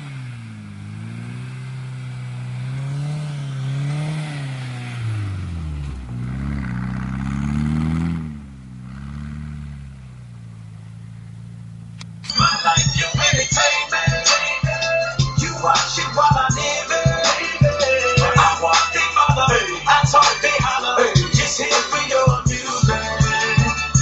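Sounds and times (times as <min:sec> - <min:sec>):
car engine revving: 0:00.0 - 0:12.3, 0:13.7 - 0:24.0
music: 0:12.3 - 0:24.0.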